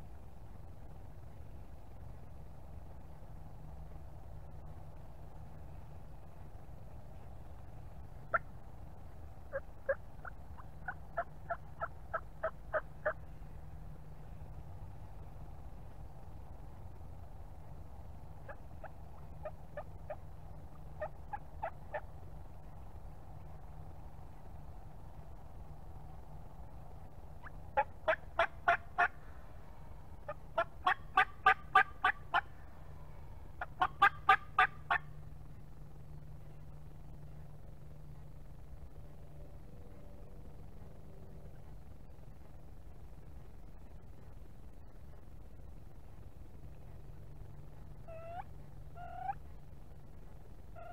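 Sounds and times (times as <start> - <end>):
turkey yelping: 9.5 - 13.2, 18.4 - 20.2, 21.0 - 22.1, 27.7 - 29.2, 30.2 - 32.5, 33.6 - 35.1, 48.0 - 49.4.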